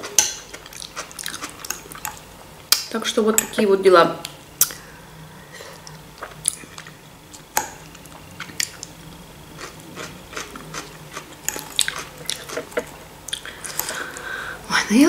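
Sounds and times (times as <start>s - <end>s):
person chewing food: 0.0s - 2.2s, 5.7s - 14.3s.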